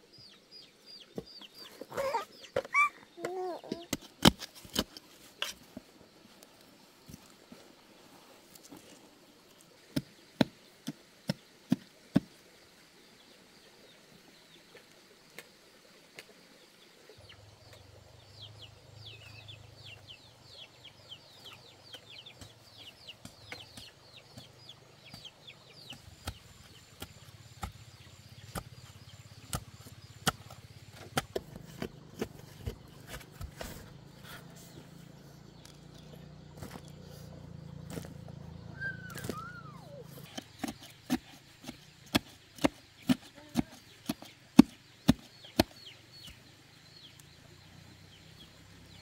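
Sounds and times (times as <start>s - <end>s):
digging knocks in soil: 2.5s - 5.9s, 21.9s - 34.6s, 36.5s - 37.0s, 37.8s - 38.4s, 40.2s - 46.4s
bird calling high falling notes: 38.7s - 40.2s.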